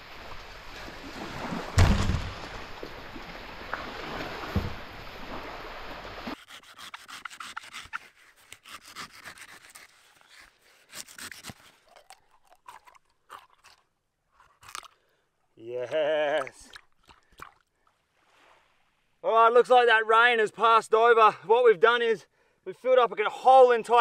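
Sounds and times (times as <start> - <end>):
surf: 0.0 - 6.4
wind: 0.0 - 24.0.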